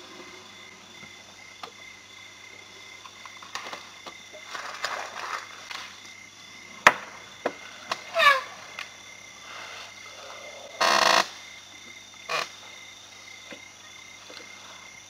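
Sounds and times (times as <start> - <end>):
high insect trill: 0.0 - 15.0
twigs crackling: 3.1 - 6.2
leaves rustling: 3.2 - 6.3.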